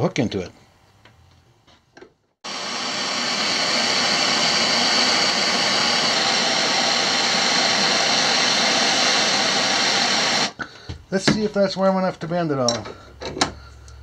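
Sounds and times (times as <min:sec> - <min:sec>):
gas torch flame hissing: 0:02.4 - 0:10.6.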